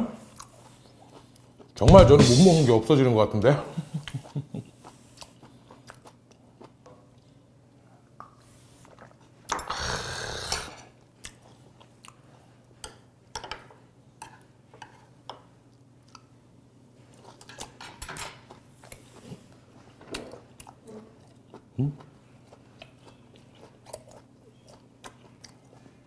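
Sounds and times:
chewing: 0:04.1 - 0:07.4, 0:18.4 - 0:26.0.

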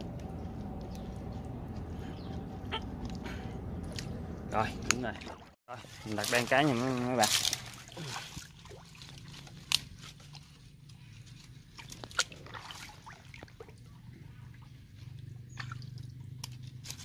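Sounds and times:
steady low hum: 0:00.0 - 0:05.5
twigs and leaves crackling: 0:05.7 - 0:12.4.

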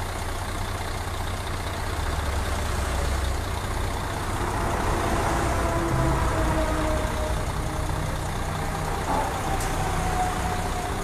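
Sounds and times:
diesel engine idling: 0:00.0 - 0:11.0
motorway traffic noise: 0:00.0 - 0:11.0.

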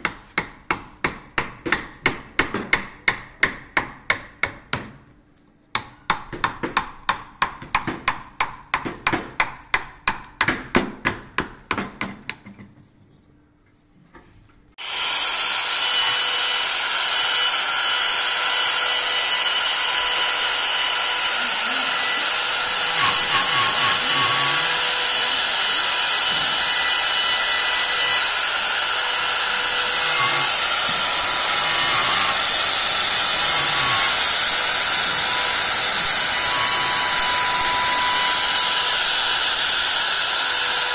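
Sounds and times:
mallet knocking carving gouge: 0:00.0 - 0:05.0, 0:05.7 - 0:12.6, 0:14.9 - 0:40.9
rotary carving tool whine: 0:14.8 - 0:40.9.

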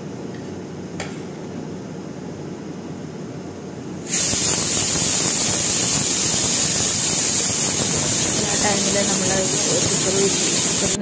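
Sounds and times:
pressure cooker steam hissing: 0:04.0 - 0:11.0.

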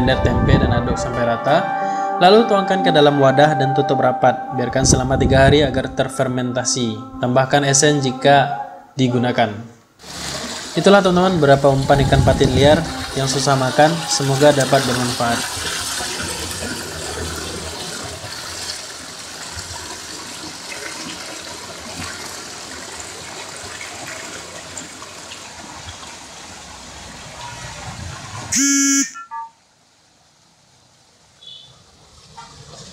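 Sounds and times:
stream rushing over rocks: 0:10.0 - 0:28.6
brief beeps: 0:28.5 - 0:29.6
short loud horn-like tone: 0:28.5 - 0:29.6.

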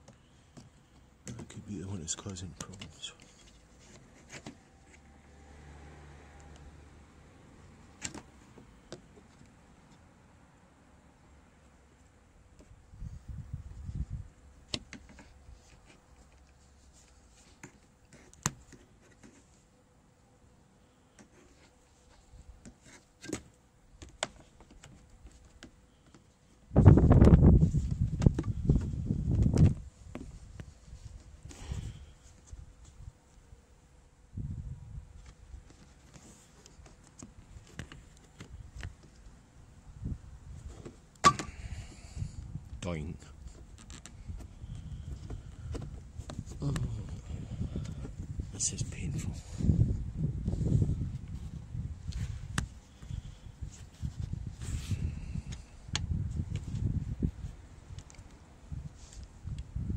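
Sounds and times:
sharp knock with ring: 0:41.2 - 0:41.6.

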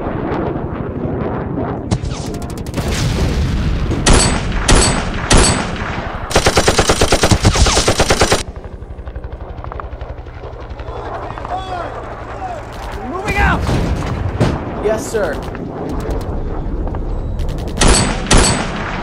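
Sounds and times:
rifle shots: 0:04.0 - 0:08.4, 0:17.5 - 0:19.0
rapid machine-gun fire: 0:04.0 - 0:08.5, 0:17.4 - 0:19.0.

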